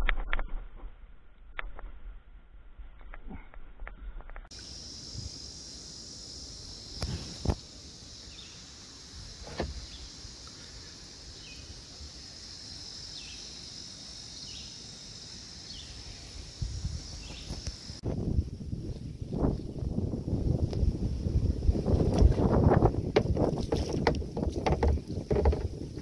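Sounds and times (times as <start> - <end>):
high-pitched insect drone: 4.5 - 18.0
knocks: 23.1 - 25.8.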